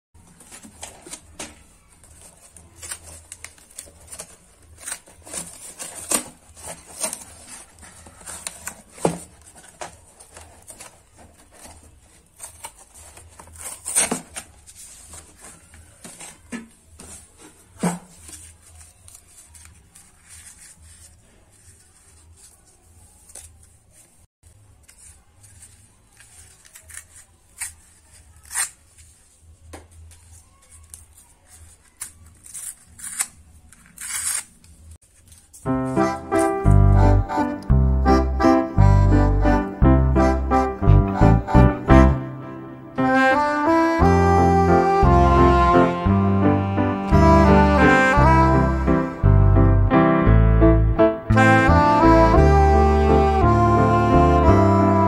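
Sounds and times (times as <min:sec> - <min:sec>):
cardboard tearing and crackling: 0:00.4 - 0:22.6, 0:25.0 - 0:29.3, 0:30.2 - 0:35.6
sharp cardboard rips: 0:02.2 - 0:16.4, 0:26.2 - 0:29.1, 0:30.9 - 0:34.8.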